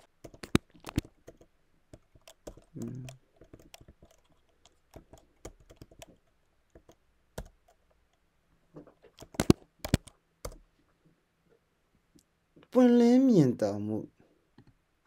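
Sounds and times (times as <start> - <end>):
keyboard typing clicks: 0.0 - 7.8, 9.2 - 10.6.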